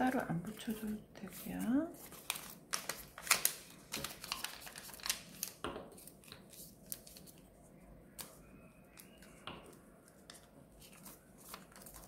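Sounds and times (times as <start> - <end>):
paper rustling and crinkling: 0.5 - 7.4, 10.1 - 12.0.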